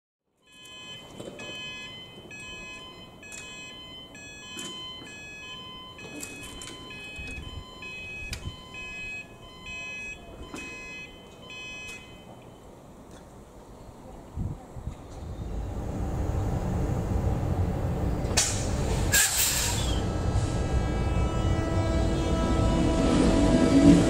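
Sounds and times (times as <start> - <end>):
two-tone crossing alarm warble: 0.4 - 12.9, 19.7 - 24.0.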